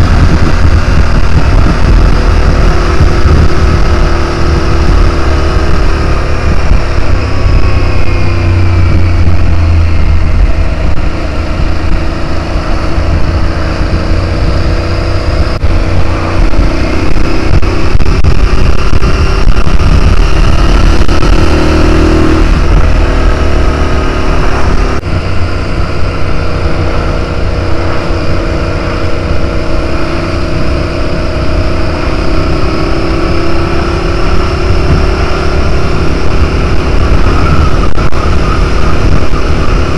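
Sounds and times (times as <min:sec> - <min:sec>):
motorcycle engine running: 0:00.0 - 0:39.9
wind and road noise: 0:00.0 - 0:39.9.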